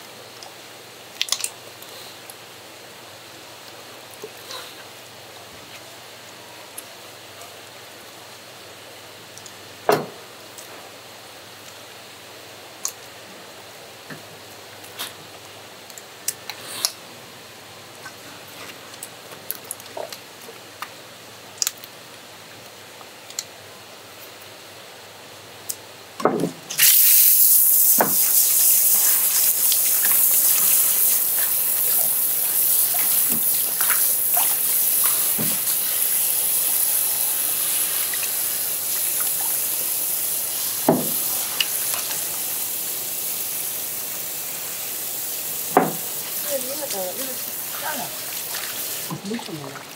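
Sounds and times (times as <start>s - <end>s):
water gushing loudly: 26.8s - 49.9s.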